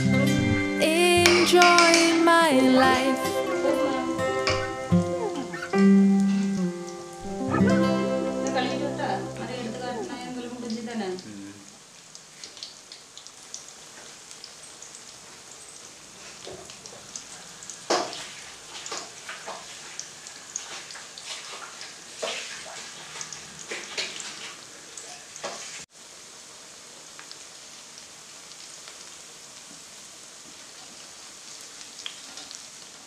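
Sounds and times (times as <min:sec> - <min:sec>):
deep-frying sizzle: 0:00.0 - 0:33.0
oil crackles and pops: 0:12.0 - 0:33.0.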